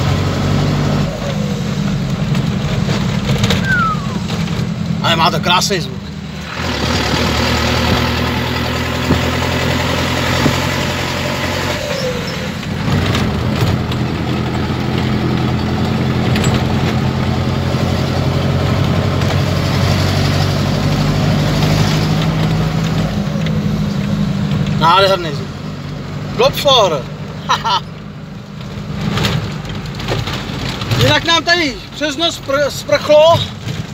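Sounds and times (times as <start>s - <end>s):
diesel truck engine droning: 0.0s - 33.9s.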